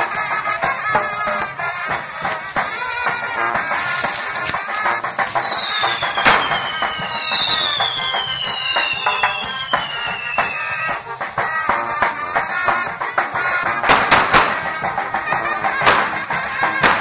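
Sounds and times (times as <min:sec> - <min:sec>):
fireworks sharp bangs: 0:00.0 - 0:17.0
spark fountains whistling and crackling: 0:03.7 - 0:11.2
whistle falling in pitch: 0:04.2 - 0:11.0.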